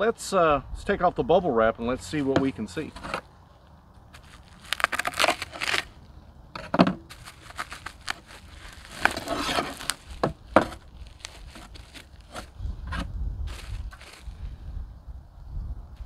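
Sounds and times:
bubble wrap crinkling and tearing: 4.1s - 6.0s, 7.1s - 12.6s, 13.5s - 14.4s.

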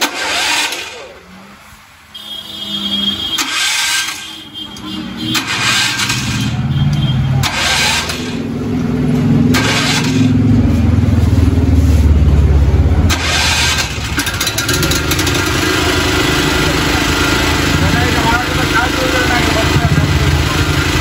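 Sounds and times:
generator engine starting and running: 0.0s - 21.0s.

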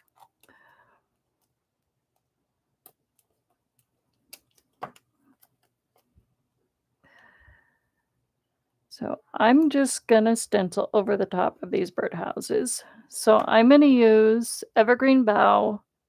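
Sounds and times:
soft rustling of craft supplies: 0.0s - 7.2s.

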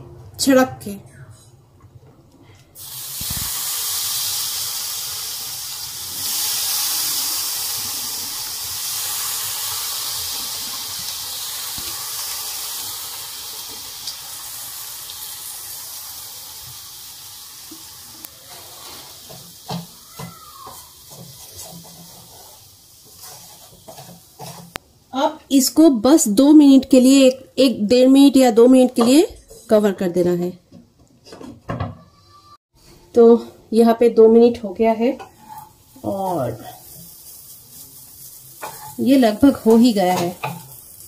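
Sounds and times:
water sizzling in hot pan: 2.8s - 25.7s, 34.9s - 41.0s
wooden spatula scraping pan: 18.4s - 24.8s, 35.2s - 35.8s, 38.6s - 39.0s.

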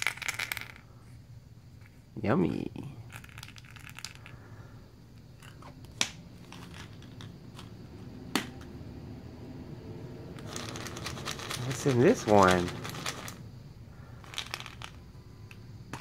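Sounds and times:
plastic toy eggs clicking and rattling: 0.0s - 0.9s, 3.1s - 4.4s, 5.4s - 7.7s, 10.4s - 13.4s, 14.2s - 16.0s.

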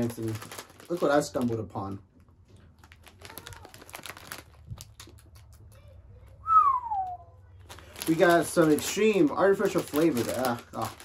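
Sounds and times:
plastic snack bag crinkling: 0.0s - 5.9s, 7.6s - 11.0s
falling whistle: 6.5s - 7.2s.

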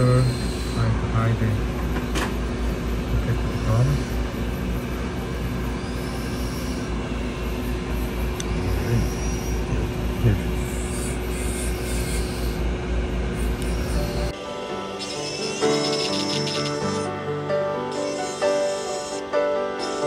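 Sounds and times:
low machine rumble and hum: 0.0s - 19.4s.

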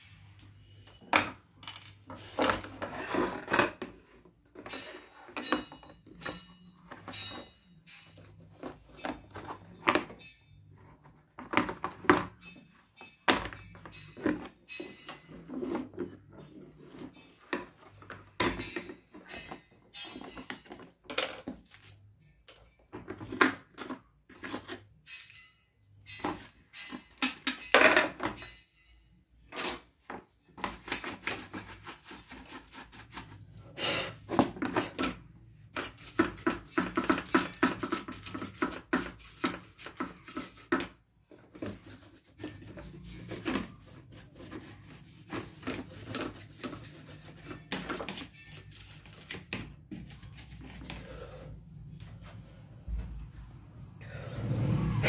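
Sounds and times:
plastic rubbing and scraping: 2.1s - 5.5s, 34.3s - 51.0s.

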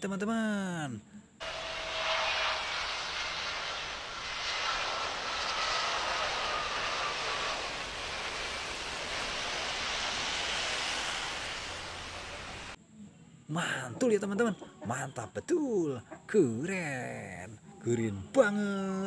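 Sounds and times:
jet airliner taking off: 1.4s - 12.8s.

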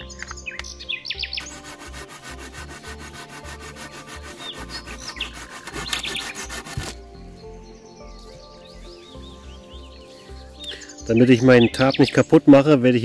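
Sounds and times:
hand saw cutting wood: 1.4s - 7.0s.

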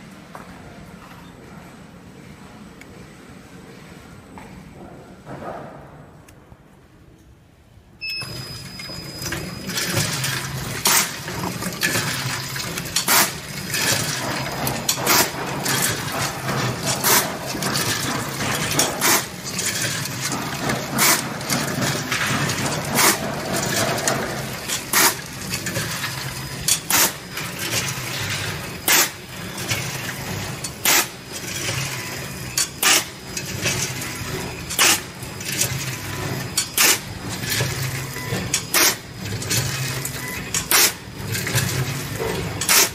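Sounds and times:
packing machine motor hum: 8.1s - 42.9s
popcorn rattling: 9.6s - 32.0s
sharp mechanical clack: 9.8s - 34.1s, 34.7s - 42.9s.

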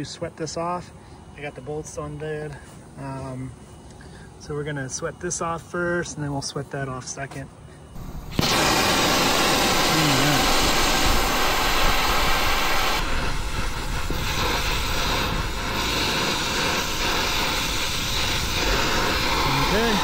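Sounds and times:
torch flame hissing: 8.0s - 20.0s.

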